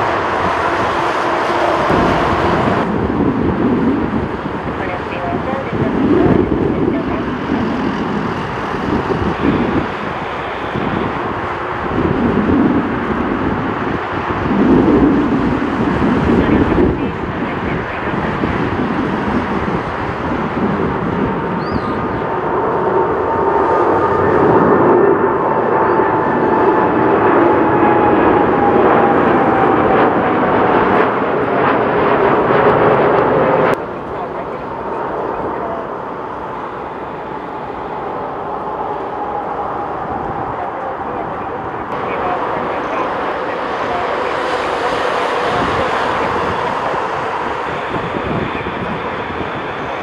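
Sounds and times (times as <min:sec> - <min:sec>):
whining tone falling in pitch: 0:00.0 - 0:03.2
jet engines at takeoff thrust: 0:00.0 - 0:50.0
wind on microphone: 0:00.0 - 0:50.0.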